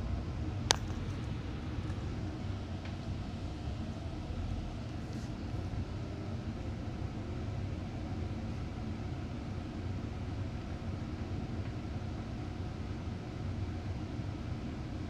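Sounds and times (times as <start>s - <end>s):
bus engine rumble: 0.0s - 15.0s.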